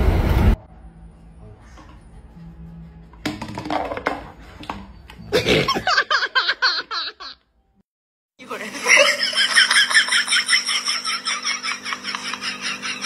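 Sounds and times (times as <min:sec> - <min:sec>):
person laughing: 0:05.3 - 0:07.4, 0:08.5 - 0:13.0.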